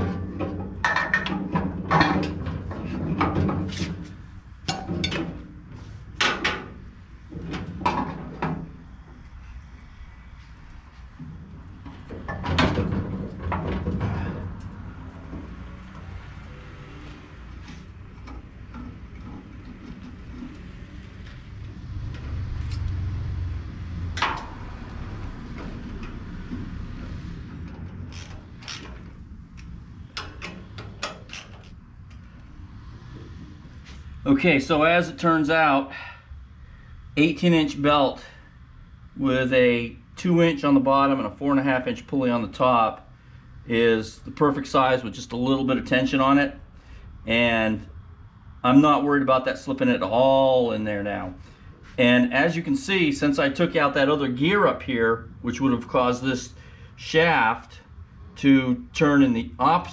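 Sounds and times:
metal clunks and scrapes: 0.0 - 9.2, 11.1 - 22.9, 24.0 - 34.2
low rumbling handling sounds: 0.0 - 39.2
steady low hum: 0.0 - 59.9.

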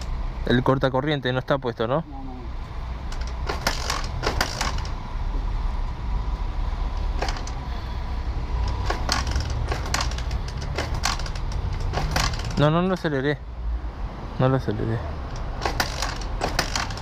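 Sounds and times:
motorcycle handling clicks and knocks: 3.1 - 5.0, 7.0 - 7.6, 8.6 - 12.8, 15.3 - 17.0.

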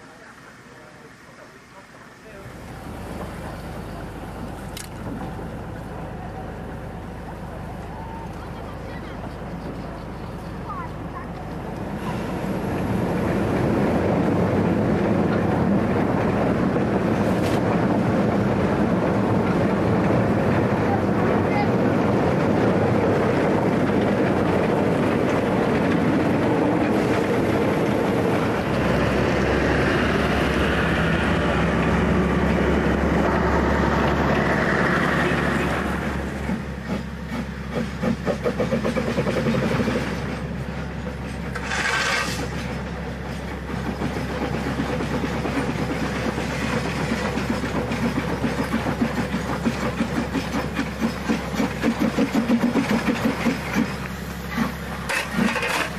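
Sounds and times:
steam locomotive running: 0.0 - 55.9
steam hiss: 51.0 - 55.4.

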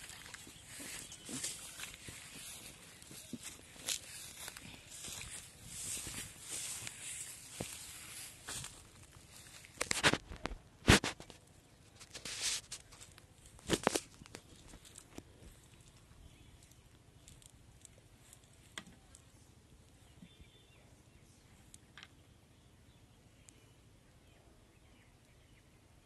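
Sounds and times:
net rustling and crackling: 0.0 - 11.3, 12.0 - 18.8.

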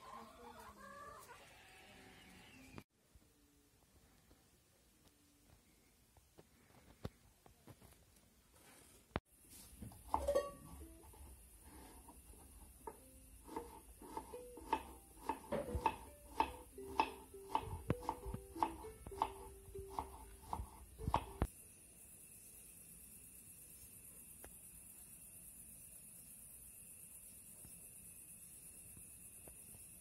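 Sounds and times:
knife cutting vegetables on board: 10.0 - 21.5
ukulele picking: 10.1 - 11.0, 14.2 - 20.4.

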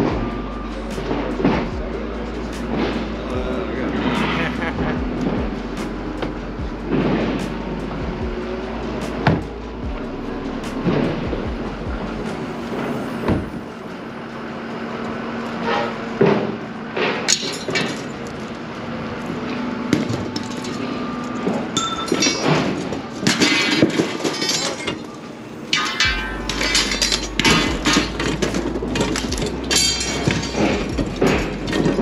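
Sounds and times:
low engine hum: 0.0 - 21.8, 25.1 - 32.0
scrap metal clanking: 19.4 - 32.0.

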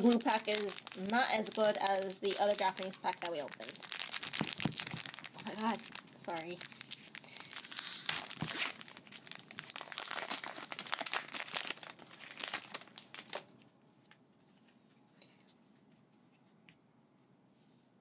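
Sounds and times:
foil wrapper tearing and crinkling: 0.0 - 13.5.

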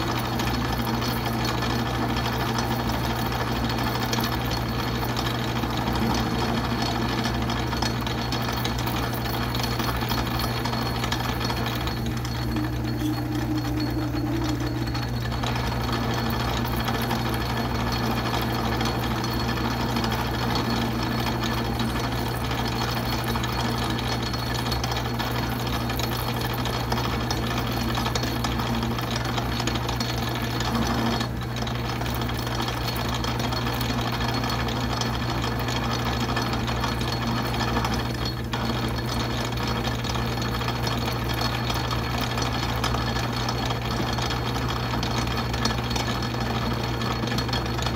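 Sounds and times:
metal lathe cutting steel: 0.0 - 47.9
low hum: 9.4 - 18.2
brief extra tone: 12.0 - 15.9.

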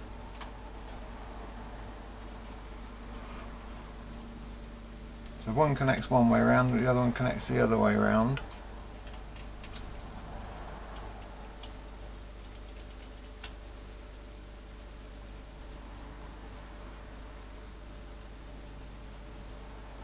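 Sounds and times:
low hum: 0.0 - 20.0
pen scratching on contacts: 10.3 - 16.8.

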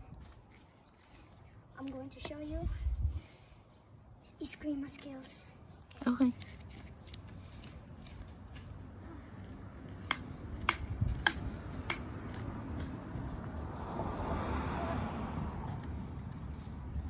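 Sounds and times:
sandals slapping on concrete: 9.9 - 13.5.

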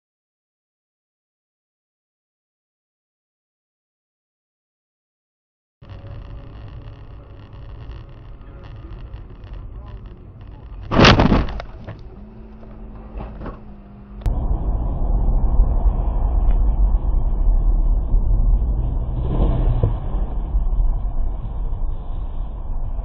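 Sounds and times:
road and engine noise inside car: 5.8 - 23.0
debris crunching and rattling: 9.8 - 13.7
car crash impact: 10.8 - 12.0, 13.0 - 13.8.

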